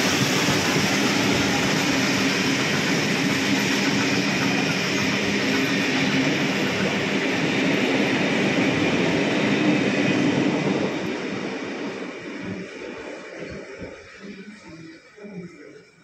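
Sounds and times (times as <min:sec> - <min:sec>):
train carriages rolling past: 0:00.0 - 0:16.0.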